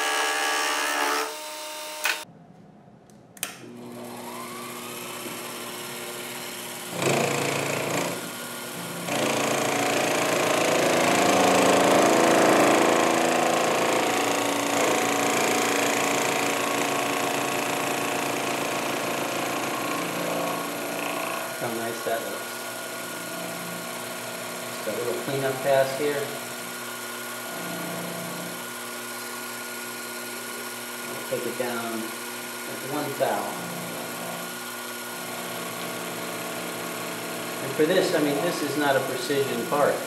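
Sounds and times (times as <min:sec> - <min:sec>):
fly cutter cutting aluminum: 0:00.0 - 0:02.2, 0:03.8 - 0:40.0
milling machine motor whine: 0:00.0 - 0:02.3, 0:03.7 - 0:40.0.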